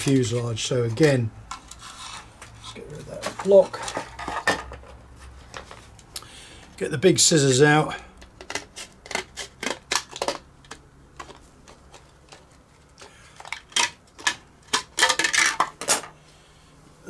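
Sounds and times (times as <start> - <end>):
scissors cutting plastic sheet: 8.4 - 10.4.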